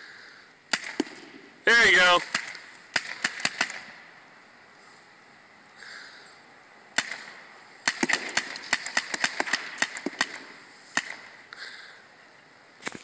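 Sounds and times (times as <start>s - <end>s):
paintball marker firing pops: 0.7s - 1.4s, 2.2s - 3.9s, 7.0s - 11.3s.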